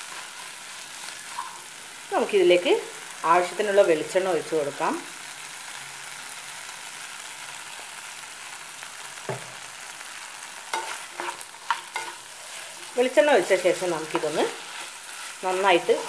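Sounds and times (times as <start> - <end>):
spatula scraping a pan: 0.0 - 1.6, 10.7 - 16.0
meat sizzling in a frying pan: 0.0 - 16.0.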